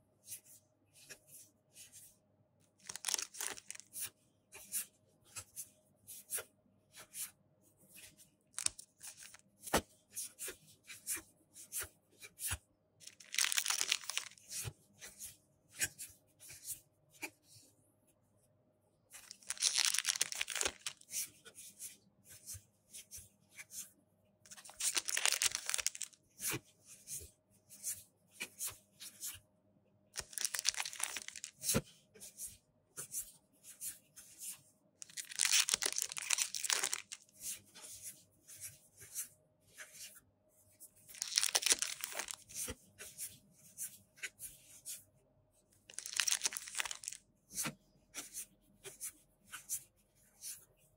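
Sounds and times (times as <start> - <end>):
wrappers tearing and crinkling: 2.8 - 3.9, 8.6 - 9.4, 13.0 - 14.4, 19.2 - 21.0, 24.5 - 26.2, 30.2 - 31.5, 35.0 - 37.3, 41.1 - 42.4, 45.9 - 47.2.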